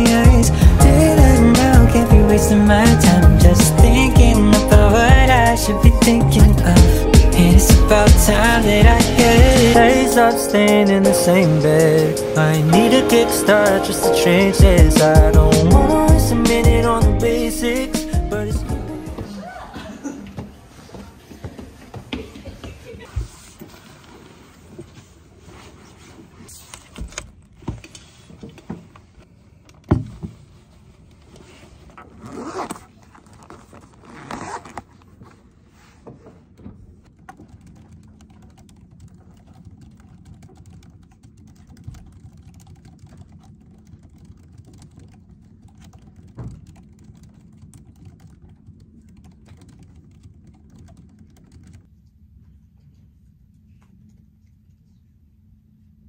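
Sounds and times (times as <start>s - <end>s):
low room hum: 35.0s - 56.0s
laptop keyboard typing: 37.1s - 51.9s.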